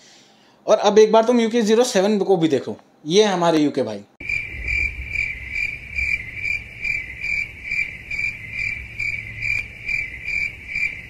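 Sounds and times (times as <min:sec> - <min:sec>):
cricket chirping: 0:04.2 - 0:11.0.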